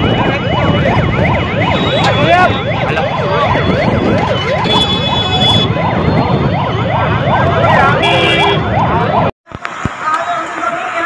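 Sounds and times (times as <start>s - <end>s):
emergency vehicle sirens: 0.0s - 11.0s
road traffic: 0.0s - 11.0s
vehicle horns honking: 4.4s - 5.8s, 7.9s - 8.7s.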